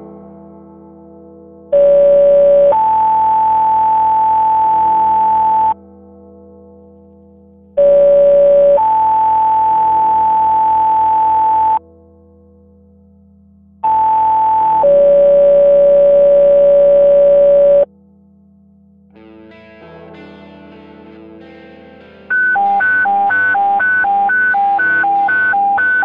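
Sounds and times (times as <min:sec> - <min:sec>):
two-tone paging tones: 0:01.8 - 0:05.8, 0:07.8 - 0:11.8, 0:13.9 - 0:17.9, 0:22.4 - 0:26.0.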